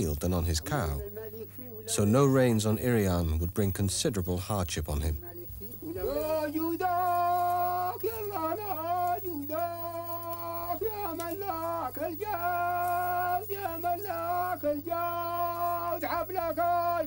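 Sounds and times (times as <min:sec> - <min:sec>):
man chanting a sung prayer: 0:00.0 - 0:17.0
steady low hum: 0:00.0 - 0:17.0.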